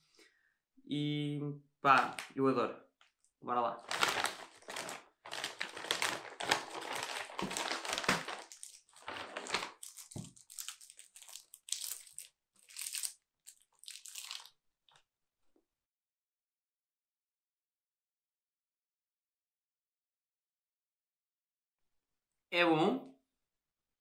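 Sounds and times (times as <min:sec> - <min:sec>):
chocolate wrapper crinkling: 0:03.8 - 0:14.6
plastic snack bag crinkling: 0:03.8 - 0:15.0.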